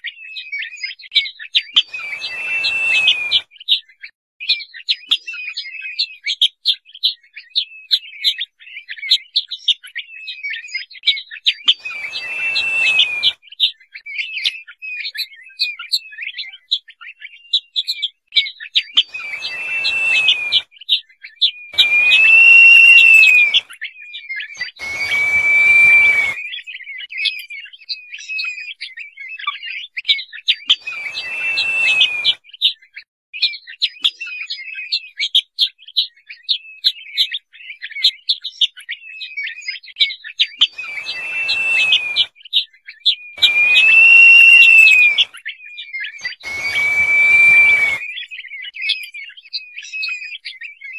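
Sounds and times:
bird whistles: 0:00.1 - 0:03.8, 0:11.6 - 0:14.5, 0:18.8 - 0:23.8, 0:24.4 - 0:26.9, 0:30.6 - 0:32.8, 0:40.4 - 0:49.0
rapid high bird chirps: 0:01.7 - 0:03.8, 0:11.6 - 0:13.6, 0:18.9 - 0:20.9, 0:21.5 - 0:23.7, 0:24.6 - 0:26.6, 0:30.7 - 0:32.7, 0:40.6 - 0:42.5, 0:43.4 - 0:45.3, 0:46.2 - 0:48.3.

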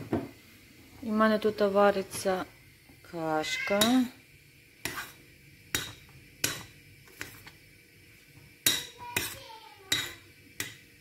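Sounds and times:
spoon knocking metal pan: 0:03.6 - 0:04.1, 0:05.7 - 0:07.4, 0:08.6 - 0:11.0
spoon stirring porridge: 0:03.6 - 0:11.0.

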